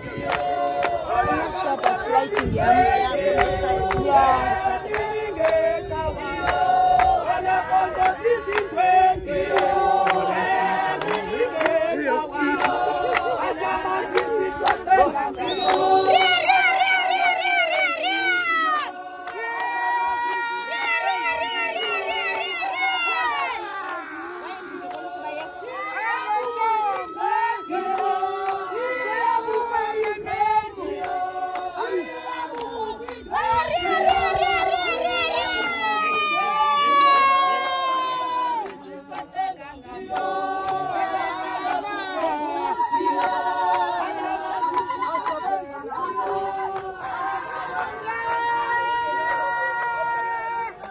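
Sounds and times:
group singing together: 0.0 - 49.3
hand claps: 0.2 - 1.1, 1.8 - 2.6, 4.8 - 5.6, 7.9 - 8.8, 9.5 - 13.3, 14.0 - 16.3, 26.3 - 30.2, 32.4 - 33.2, 50.7 - 50.9.

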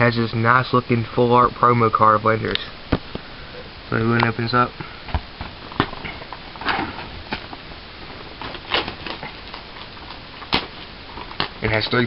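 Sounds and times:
steady hiss: 0.0 - 12.0
packaging rustling: 5.3 - 12.0.

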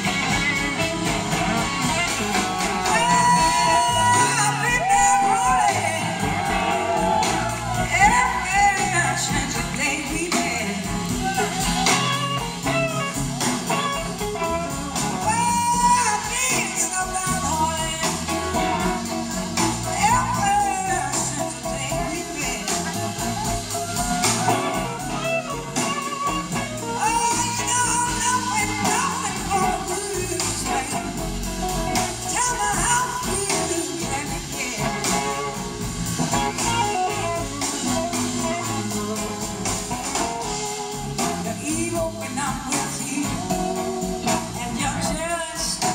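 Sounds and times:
blues-rock band playing: 0.0 - 45.9
gliding lead guitar line: 0.0 - 45.9.

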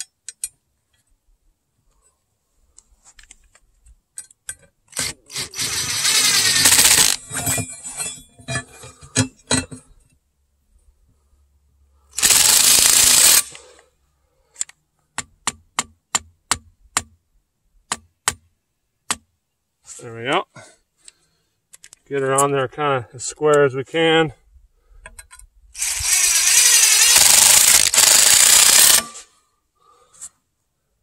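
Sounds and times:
cordless drill motor under load: 5.0 - 7.2, 12.2 - 13.6, 25.8 - 29.2.

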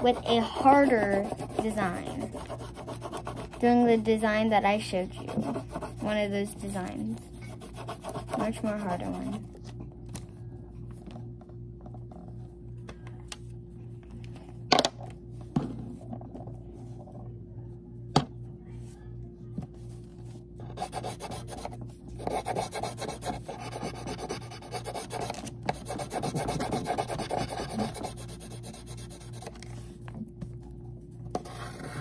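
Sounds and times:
pencil scratching on paper: 0.0 - 9.5, 20.7 - 29.6, 31.3 - 32.0.

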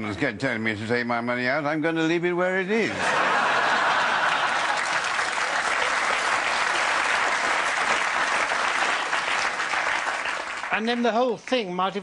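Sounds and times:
audience applauding: 3.0 - 11.8.

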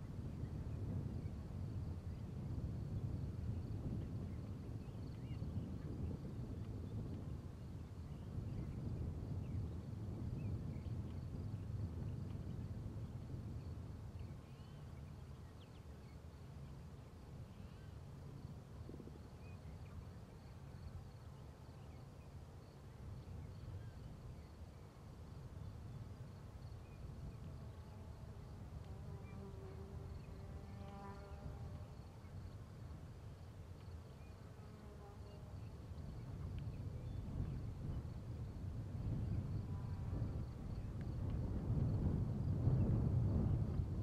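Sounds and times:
buzzing insect: 27.5 - 32.5, 34.2 - 35.7, 39.2 - 40.5.

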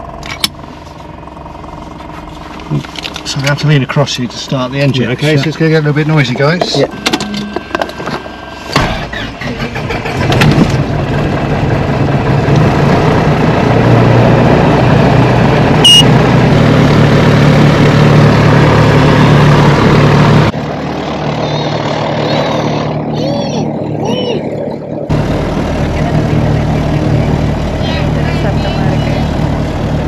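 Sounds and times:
aircraft engine cranking and running: 0.0 - 30.0
short high beep: 6.9 - 7.7, 15.8 - 16.1.

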